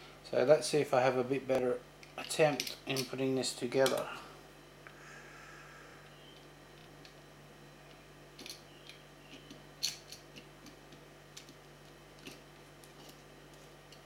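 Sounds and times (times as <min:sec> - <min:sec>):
small metal parts clicking: 0:02.1 - 0:03.2, 0:08.4 - 0:10.8.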